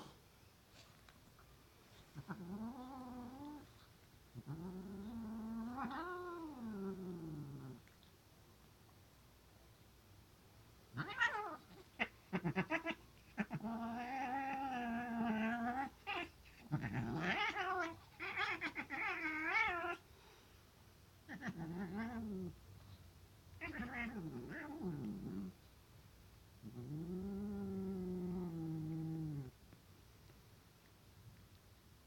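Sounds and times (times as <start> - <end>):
cat yowling: 11.0 - 13.0.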